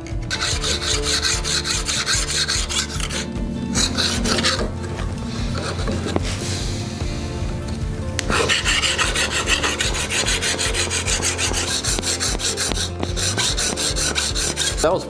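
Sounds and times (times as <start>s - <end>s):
plane iron rasping on sharpening stone: 0.3s - 3.3s, 3.9s - 4.7s, 8.3s - 14.9s.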